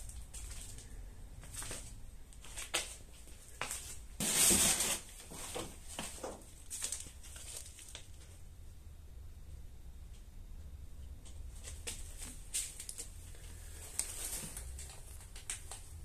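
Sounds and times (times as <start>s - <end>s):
footsteps crunching over paper litter: 0.0s - 8.3s, 11.5s - 15.6s.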